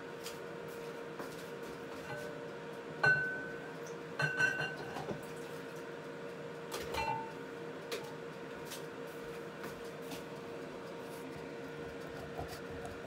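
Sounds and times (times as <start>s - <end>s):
steady electrical hum: 0.0s - 13.0s
kitchenware clinking: 3.0s - 3.5s, 4.2s - 5.2s, 6.9s - 7.3s.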